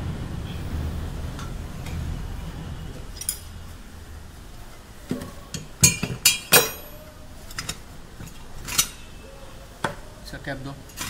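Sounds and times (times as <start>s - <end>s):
steel tools clinking: 3.1s - 3.6s, 5.5s - 9.2s.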